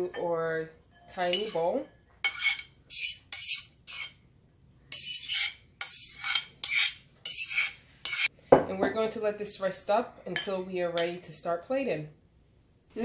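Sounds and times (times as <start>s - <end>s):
fork scraping bowl: 1.1s - 4.2s, 4.9s - 8.3s.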